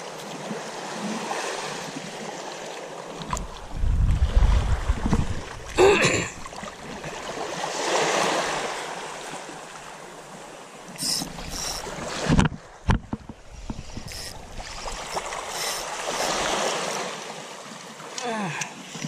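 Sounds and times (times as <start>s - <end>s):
small waves washing on shore: 0.0s - 19.0s
wind buffeting microphone: 3.3s - 5.8s, 11.3s - 16.6s.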